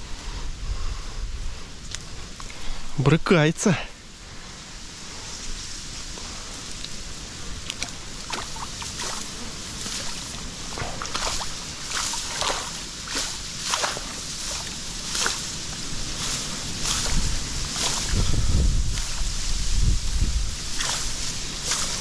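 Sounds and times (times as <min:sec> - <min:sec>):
fish thrashing water: 0:07.6 - 0:19.4, 0:20.7 - 0:22.0.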